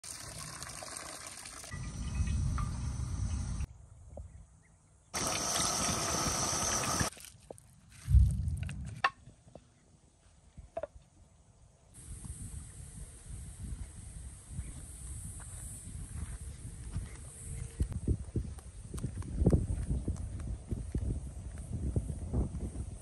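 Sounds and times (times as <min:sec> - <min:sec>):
liquid pouring into water: 0:00.0 - 0:01.7, 0:05.2 - 0:07.4
chicken sizzling in hot oil: 0:05.2 - 0:07.1.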